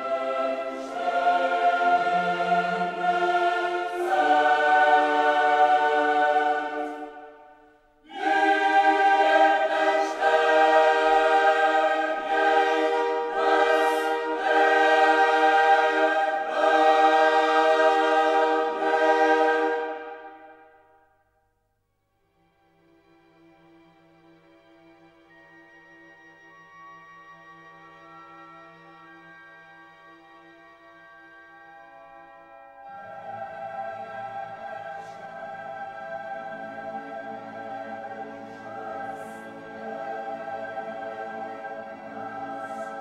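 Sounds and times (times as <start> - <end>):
choir singing held chords: 0.0 - 21.1, 32.5 - 43.0.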